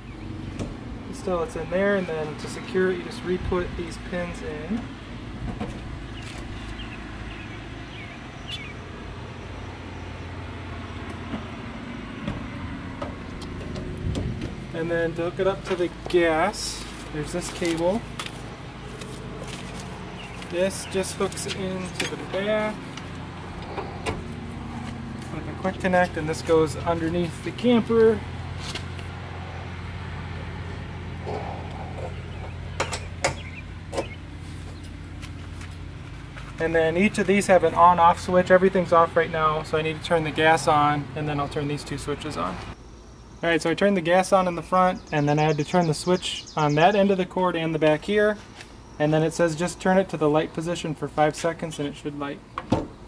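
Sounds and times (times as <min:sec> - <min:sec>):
steady low hum: 0:00.0 - 0:45.0
rustle of handling: 0:16.7 - 0:20.6, 0:34.4 - 0:36.6.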